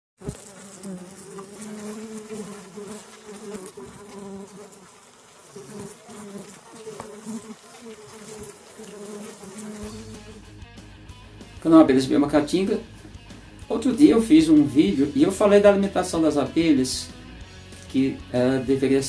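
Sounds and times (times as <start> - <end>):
bees buzzing: 0.2 - 11.4.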